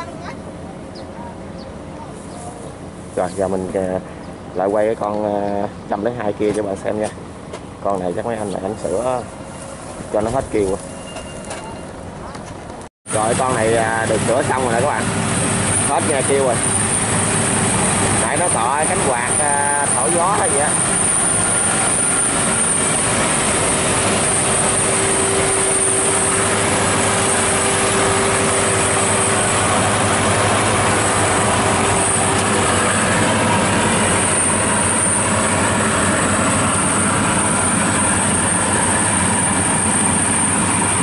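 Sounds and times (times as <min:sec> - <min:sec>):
combine harvester running: 0:13.1 - 0:41.0.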